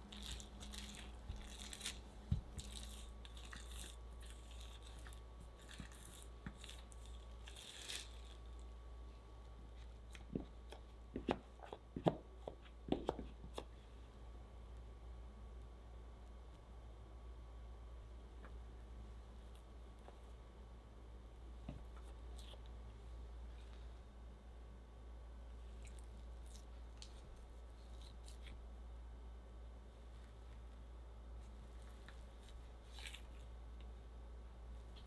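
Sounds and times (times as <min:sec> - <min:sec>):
cling wrap crinkling: 0:00.0 - 0:08.6.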